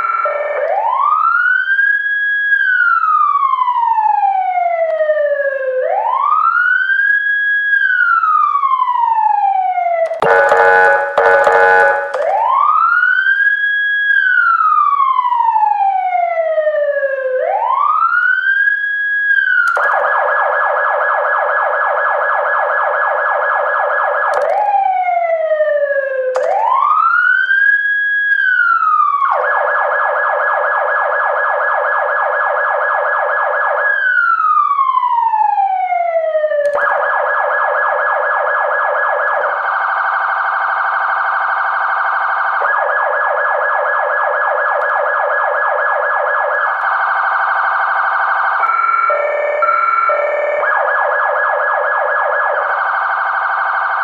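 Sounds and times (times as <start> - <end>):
emergency vehicle siren: 0.0 - 54.0
pulsing siren tone: 10.0 - 12.8, 36.4 - 54.0.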